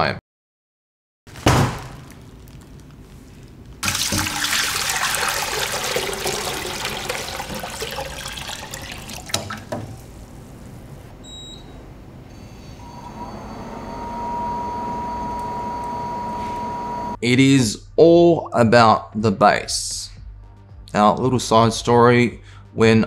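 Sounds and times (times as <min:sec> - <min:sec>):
cooktop high whine: 0:02.6 - 0:11.2
water pouring into metal pot: 0:03.8 - 0:10.1.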